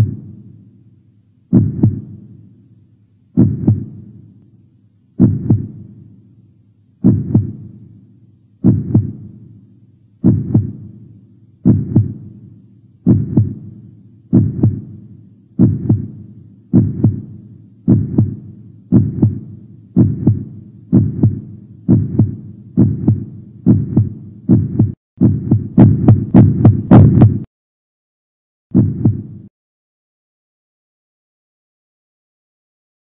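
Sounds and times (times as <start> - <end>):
heartbeat thumps: 1.5 - 2.2, 3.4 - 4.1, 5.2 - 5.9, 7.0 - 7.7, 8.6 - 9.3, 10.2 - 10.9, 11.6 - 12.3, 13.0 - 13.7, 14.3 - 15.0, 15.6 - 27.5, 28.7 - 29.5.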